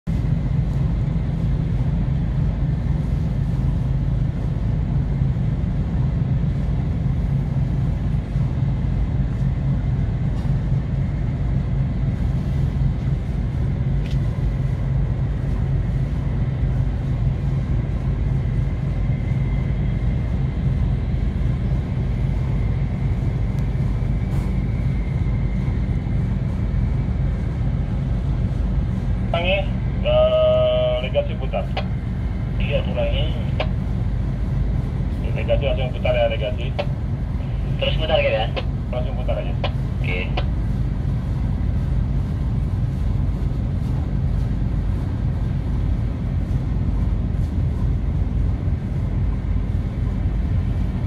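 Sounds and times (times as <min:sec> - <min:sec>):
ship engine rumbling: 0:00.0 - 0:51.0
faint high whine: 0:35.1 - 0:40.6.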